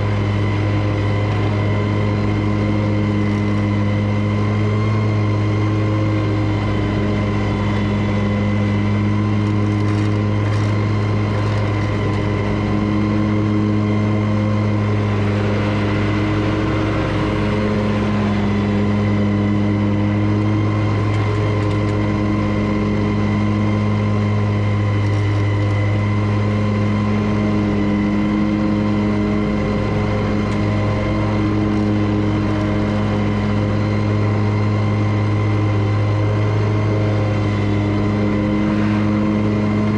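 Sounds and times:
lawn mower engine running: 0.0 - 39.9.

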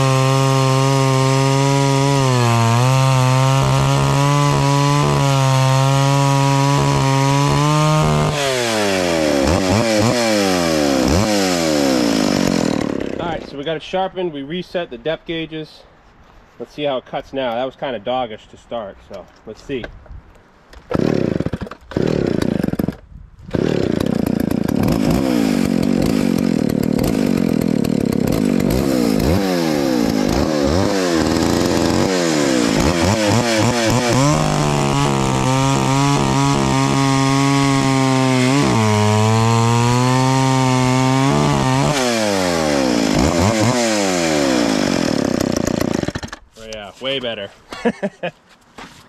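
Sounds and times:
chainsaw cutting through log: 0.0 - 13.6, 20.9 - 46.5.

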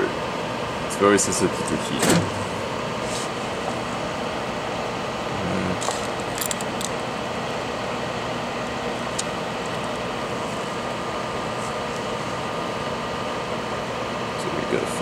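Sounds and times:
hot air blower hissing: 0.0 - 6.2.

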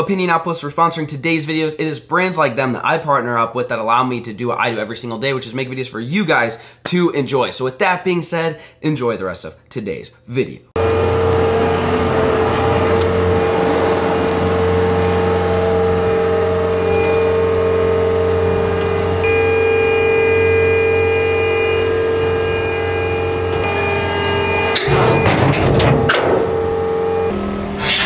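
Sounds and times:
diesel engine running: 10.8 - 28.0
high whine: 10.8 - 28.0.

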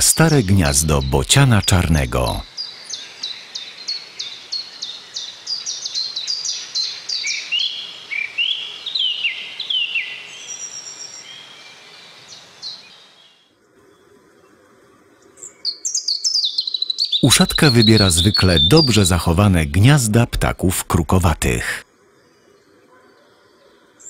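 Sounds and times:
lower whistled bird notes: 15.4 - 19.5
high bird chirps: 15.6 - 20.5.

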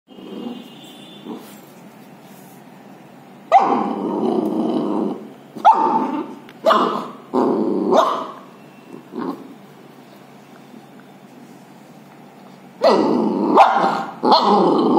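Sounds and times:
puppy growling: 3.6 - 9.6, 12.8 - 14.9.

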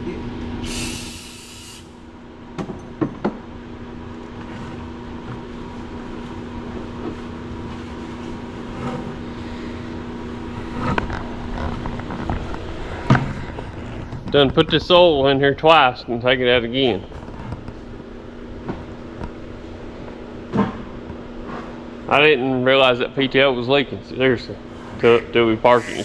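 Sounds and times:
steady hum: 0.0 - 26.0
hissing burst: 0.6 - 1.9, 25.7 - 26.0.

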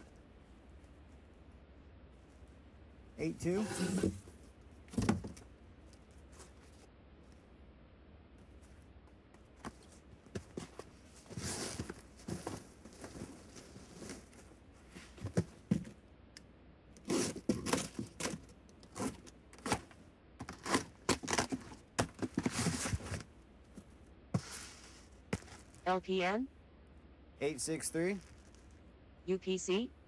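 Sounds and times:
cardboard scraping: 3.4 - 5.4, 9.6 - 15.9, 17.0 - 23.3, 24.4 - 25.8.

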